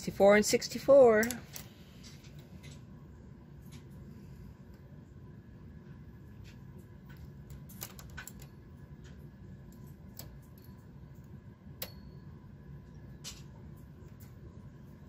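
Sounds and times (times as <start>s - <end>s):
metallic clicks of knitting machine needles: 7.5s - 12.1s.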